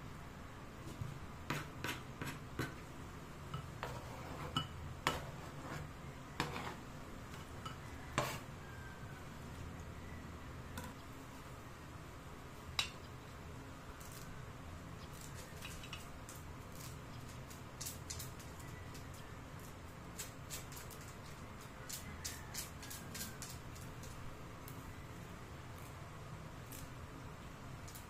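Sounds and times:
knife scraping cutting board: 0:03.8 - 0:07.5, 0:08.1 - 0:08.5.

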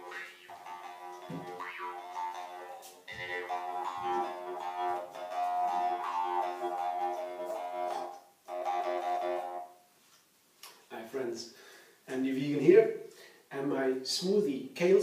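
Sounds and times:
jaw harp twanging melody: 0:00.0 - 0:09.7.

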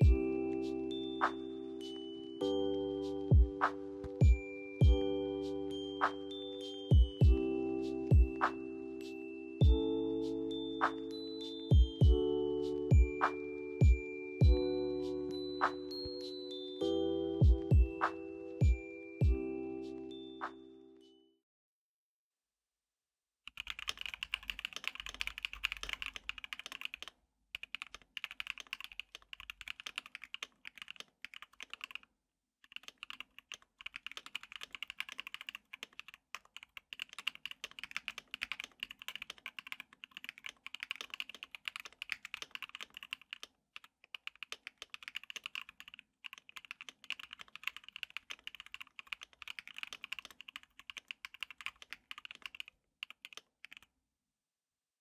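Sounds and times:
mechanical keyboard typing: 0:23.5 - 0:53.9.

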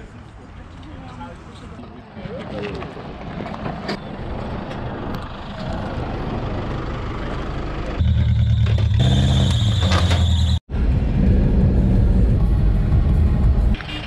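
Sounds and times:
high steady squeal: 0:08.0 - 0:10.6.

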